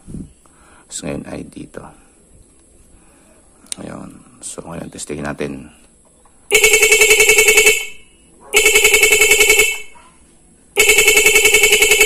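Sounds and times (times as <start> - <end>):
stuttering horn beeps: 6.5 - 10.0, 10.8 - 12.0.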